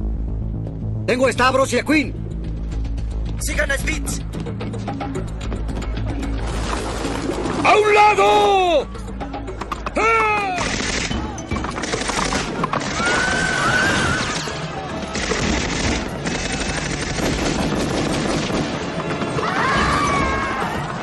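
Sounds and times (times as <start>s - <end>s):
film music score: 0.0s - 21.0s
man shouting: 7.8s - 8.9s, 10.0s - 10.6s
submachine gun fire: 10.6s - 11.2s, 11.8s - 13.4s, 15.1s - 18.9s.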